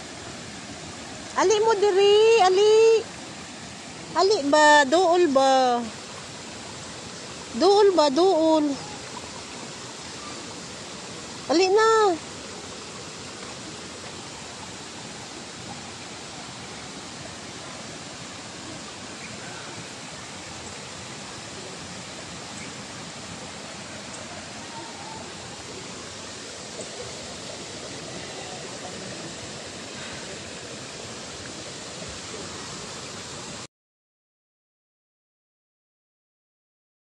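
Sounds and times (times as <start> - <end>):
flowing water rushing: 0.0 - 33.7.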